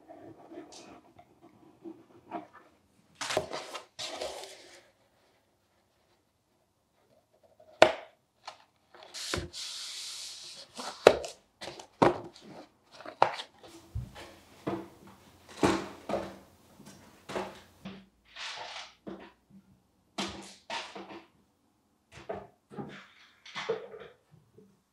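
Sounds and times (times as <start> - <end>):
plastic bottles knocking into box: 14.0 - 16.4.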